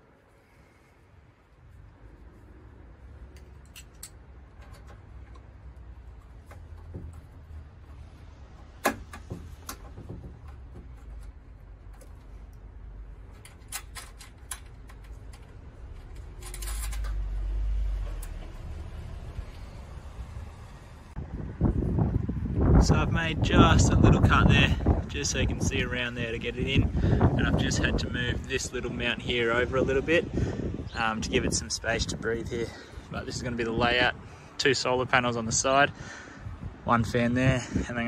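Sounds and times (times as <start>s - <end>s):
wind rumbling on microphone: 18.8s - 38.0s.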